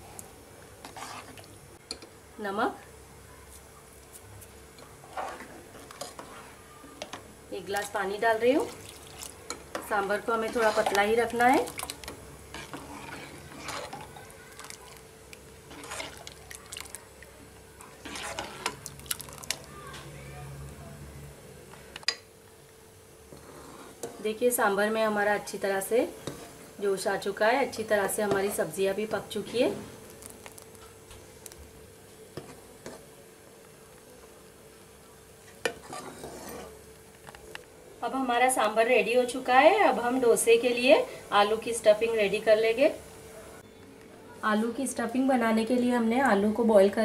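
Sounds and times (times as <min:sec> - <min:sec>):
stew simmering in a pot: 0:00.0 - 0:20.8, 0:21.8 - 0:37.8
soup bubbling in a pan: 0:00.2 - 0:02.2, 0:08.6 - 0:20.0, 0:29.9 - 0:34.0.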